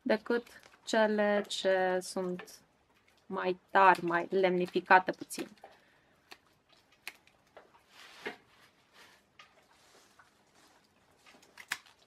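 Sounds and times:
faint handling rustle: 7.5s - 11.6s.

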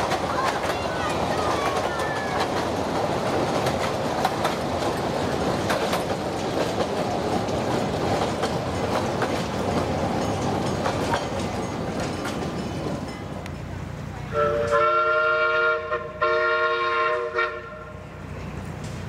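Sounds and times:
wheels clicking and rattling: 0.0s - 14.0s
steam train rumbling: 0.0s - 19.0s.

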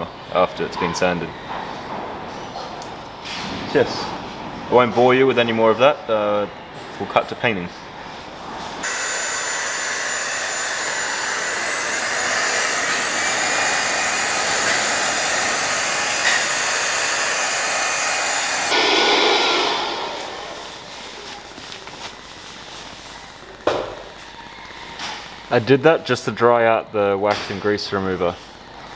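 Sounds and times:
cordless blower running: 8.8s - 22.1s.

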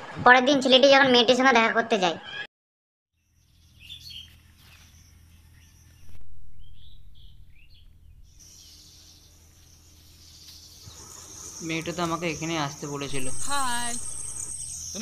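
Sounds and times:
bird chirps and calls: 3.6s - 15.0s
low steady rumble: 5.1s - 10.4s, 13.0s - 14.9s
insects shrilling: 6.7s - 15.0s.

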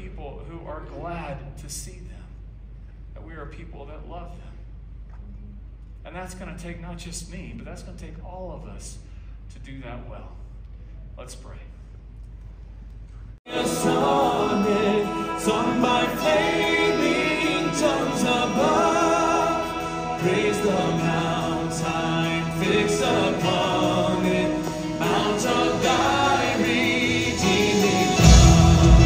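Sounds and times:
amplified worship band: 13.5s - 29.0s.

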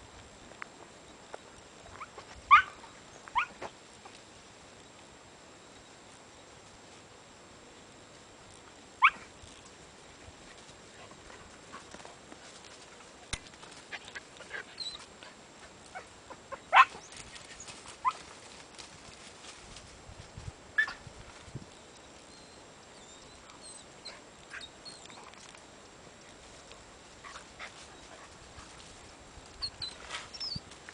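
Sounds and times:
dog yelping: 2.5s - 2.8s, 3.4s - 3.6s, 9.0s - 9.3s, 16.0s - 17.1s
twigs and leaves rustling: 8.0s - 30.9s
faint bird chirps: 21.9s - 25.2s, 29.6s - 30.6s.

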